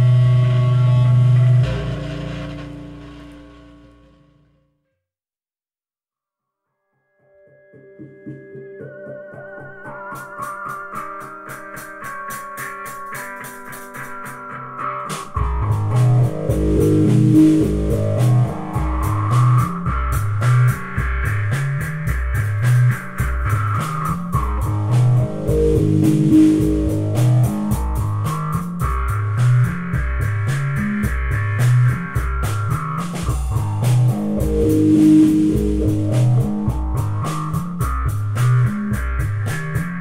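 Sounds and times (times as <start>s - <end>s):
drums: 0.0s - 4.4s, 7.8s - 40.0s
pulsing low bass line: 0.0s - 4.4s, 15.4s - 40.0s
sweeping pitch effect: 0.0s - 4.5s, 24.4s - 28.3s
guitar: 0.0s - 4.7s, 7.1s - 40.0s.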